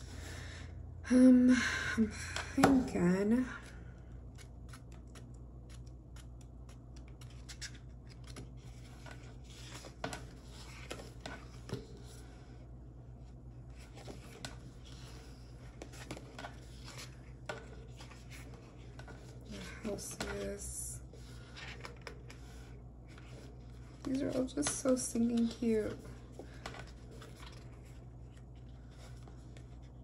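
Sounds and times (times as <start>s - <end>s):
paper pages rustling: 4.3s - 12.2s, 13.7s - 20.4s, 21.3s - 30.0s.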